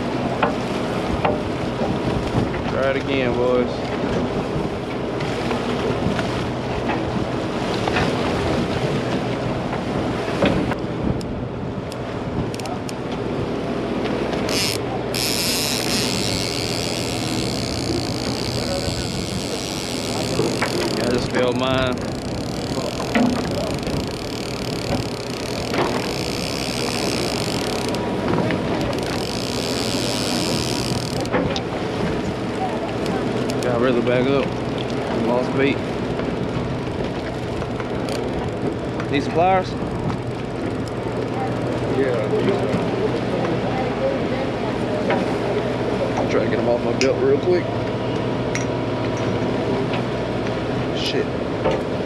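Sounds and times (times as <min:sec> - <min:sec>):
boat engine running: 0:00.0 - 0:52.0
sea noise: 0:00.0 - 0:52.0
wind: 0:00.0 - 0:52.0
wind on microphone: 0:14.5 - 0:33.5.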